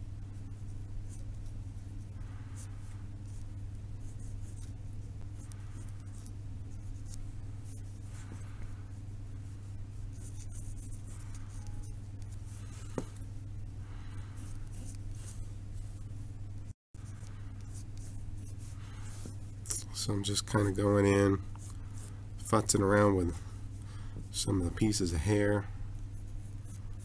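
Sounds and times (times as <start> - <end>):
steady low hum: 0.0 - 27.0
pencil scratching on card: 5.4 - 13.3, 14.0 - 16.1, 17.1 - 19.6.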